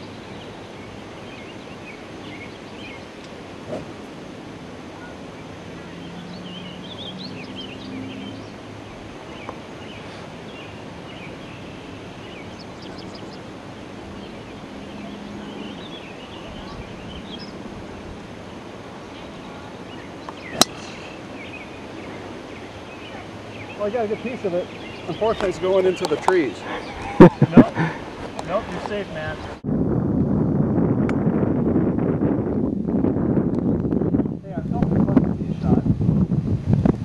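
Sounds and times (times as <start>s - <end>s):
birds chirping: 0.0s - 29.6s
background hush: 8.4s - 29.6s.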